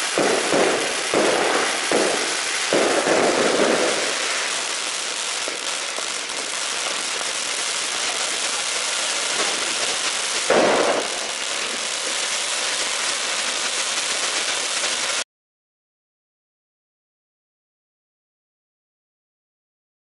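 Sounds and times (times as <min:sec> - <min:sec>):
firework burst: 0:00.0 - 0:15.2
firework fountain hissing and crackling: 0:00.0 - 0:15.3.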